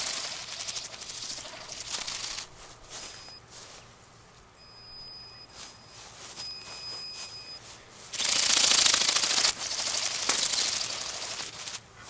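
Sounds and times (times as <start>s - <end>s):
ornithopter drone wings buzzing: 0.0s - 3.4s, 7.9s - 12.0s.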